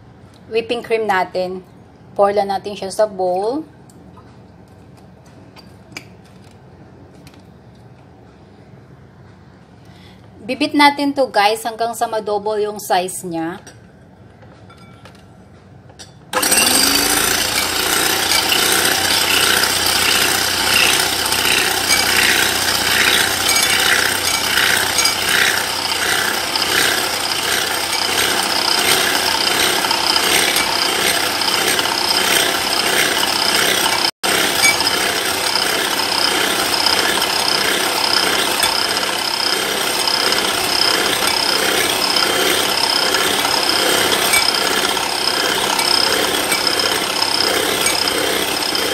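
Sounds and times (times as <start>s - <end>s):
beaters rattling in bowl: 16.4s - 48.9s
electric hand mixer whine: 16.4s - 48.9s.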